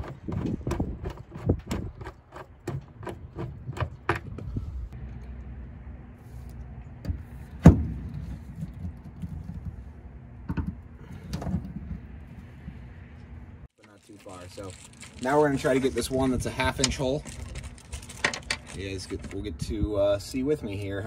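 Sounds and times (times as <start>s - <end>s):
steady low hum: 2.6s - 13.7s.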